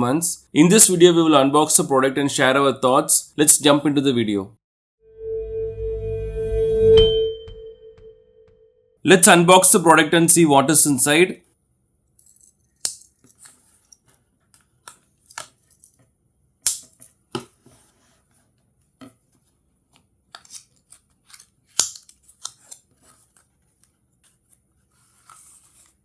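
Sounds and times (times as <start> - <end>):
paper rustling: 19.2 - 26.0.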